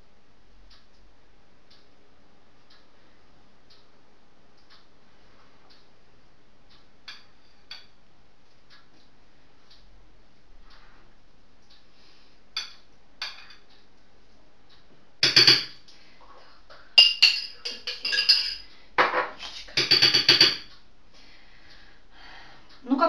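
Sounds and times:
spoon clinking against glass jar: 17.0s - 18.6s.

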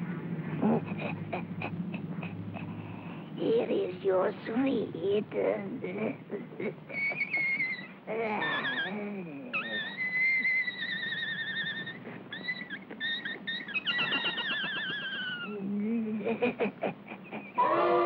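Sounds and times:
squeaky warbling cartoon tones: 6.9s - 15.6s.

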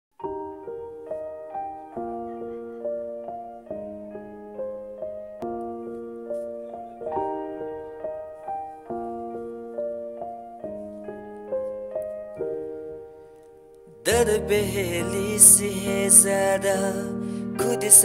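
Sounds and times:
slow solo piano chords: 0.2s - 18.0s.

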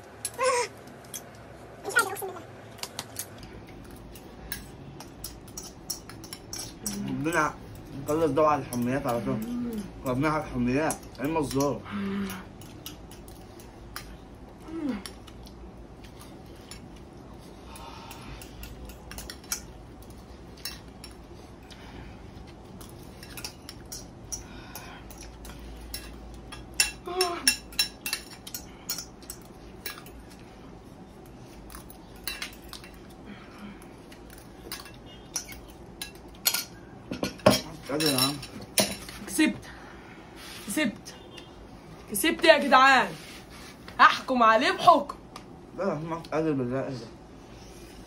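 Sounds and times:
cutlery clinking against bowls: 2.9s - 14.2s, 18.1s - 21.2s, 22.8s - 30.4s, 31.7s - 33.1s, 34.1s - 39.2s.

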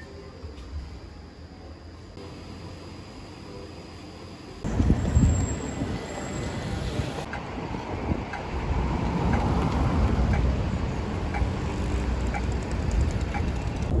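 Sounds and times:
low rumble of traffic: 0.0s - 14.0s
wind buffeting the microphone: 4.7s - 10.4s.

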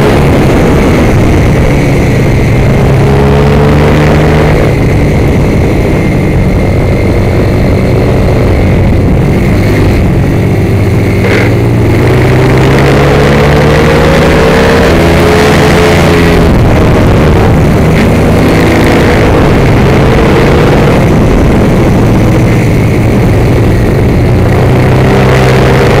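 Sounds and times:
motorcycle engine accelerating: 0.0s - 26.0s
wind noise: 0.0s - 26.0s.

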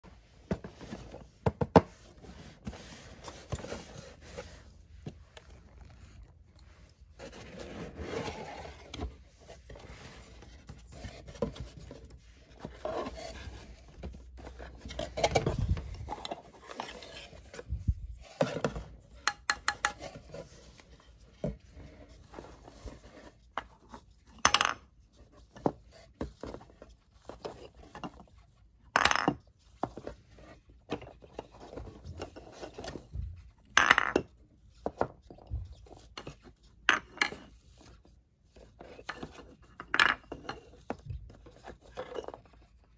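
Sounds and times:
cardboard and paper rustling: 0.0s - 19.2s, 20.0s - 33.7s
wooden balls clacking: 24.4s - 24.9s, 28.9s - 29.4s, 33.6s - 34.4s, 39.2s - 41.4s.

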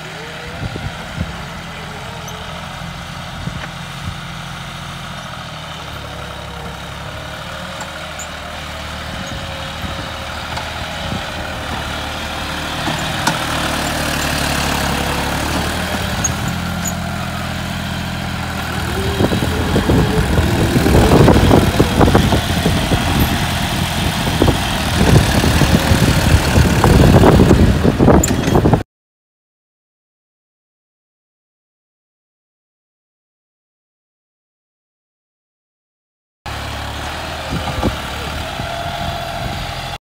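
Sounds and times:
tractor diesel engine running: 0.0s - 28.8s, 36.5s - 40.0s
rough uneven rattle: 4.8s - 28.7s.

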